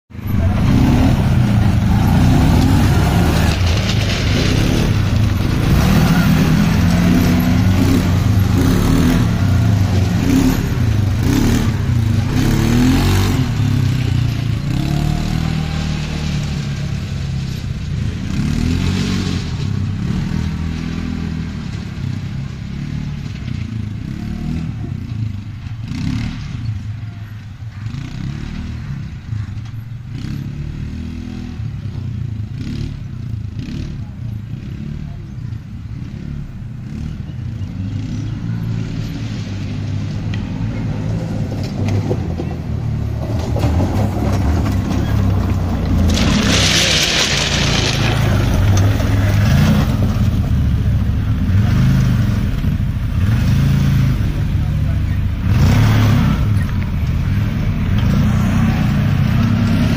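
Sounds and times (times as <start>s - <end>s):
utility vehicle engine revving: 0.1s - 27.0s, 27.8s - 59.9s.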